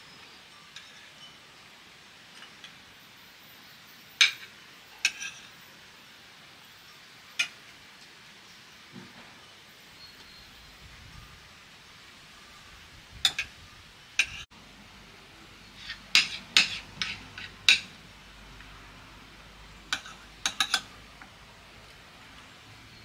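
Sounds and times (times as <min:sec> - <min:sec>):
knife and fork clinking on plate: 0:04.2 - 0:05.6.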